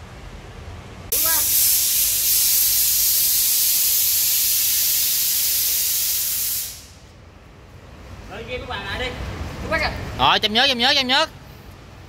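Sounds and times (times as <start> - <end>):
loud steady hiss: 1.0 - 9.1.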